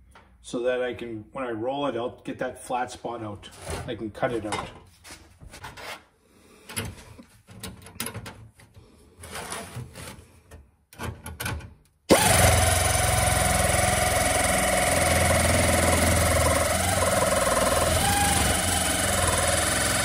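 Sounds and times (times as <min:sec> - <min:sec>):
power shear buzzing: 0:12.1 - 0:20.0.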